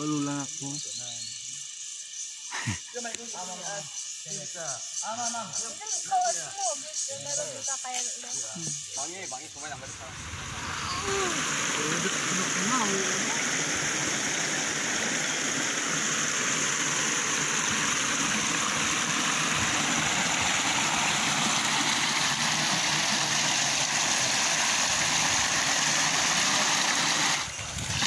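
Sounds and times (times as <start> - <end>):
water rushing over rocks: 9.8 - 28.0.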